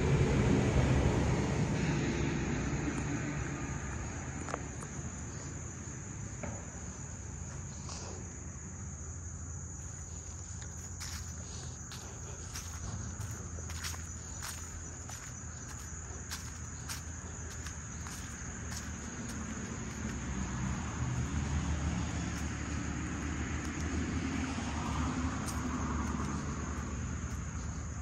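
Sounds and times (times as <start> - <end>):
crickets chirring: 0.1 - 28.0
footsteps on leafy dirt path: 9.7 - 28.0.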